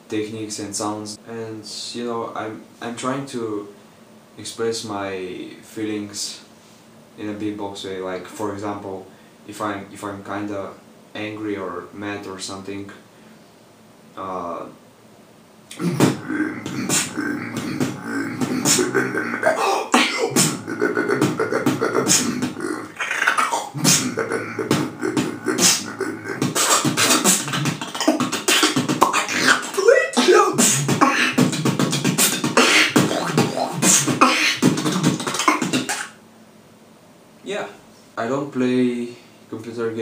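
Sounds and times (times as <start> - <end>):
man beatboxing: 15.7 - 36.2.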